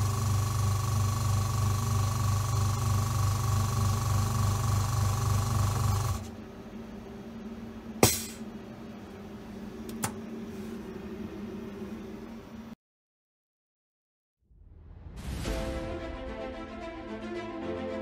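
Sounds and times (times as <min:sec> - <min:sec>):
vacuum pump humming: 0:00.0 - 0:12.7
faint machine hum: 0:00.0 - 0:12.8
sharp click with hiss: 0:08.0 - 0:08.4
small click: 0:09.9 - 0:10.2.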